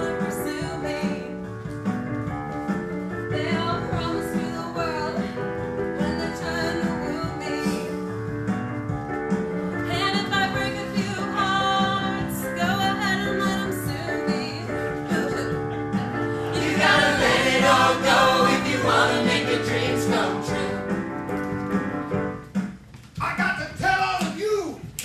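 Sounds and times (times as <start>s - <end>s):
group singing with instruments: 15.0s - 21.1s.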